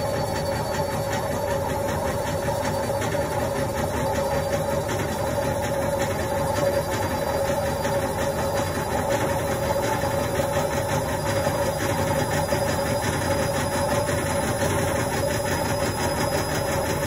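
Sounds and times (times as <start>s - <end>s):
washing machine spinning: 0.0s - 17.0s.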